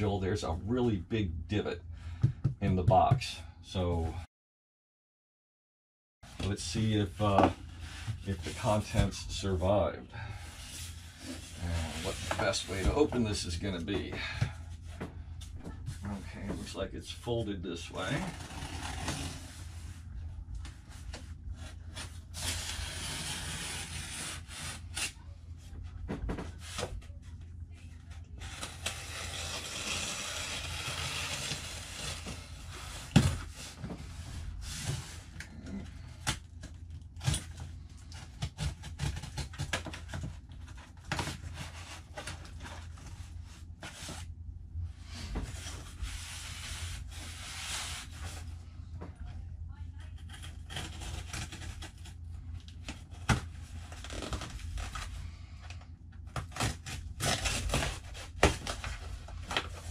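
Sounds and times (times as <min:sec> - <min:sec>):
steady low hum: 0:06.2 - 0:59.9
cardboard rubbing and scraping: 0:10.5 - 0:14.1, 0:17.9 - 0:20.1, 0:20.8 - 0:25.2, 0:28.3 - 0:36.2, 0:45.2 - 0:48.5.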